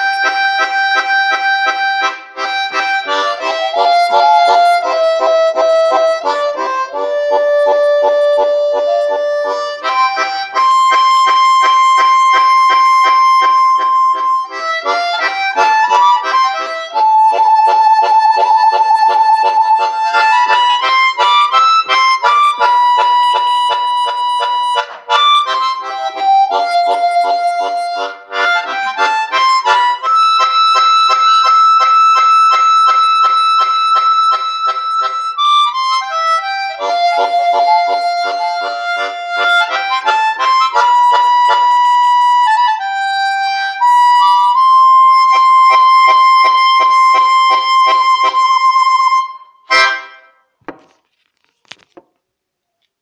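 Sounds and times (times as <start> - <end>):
harmonica playing slow melody: 0.0 - 50.4
pulsing chord accompaniment: 36.8 - 39.6.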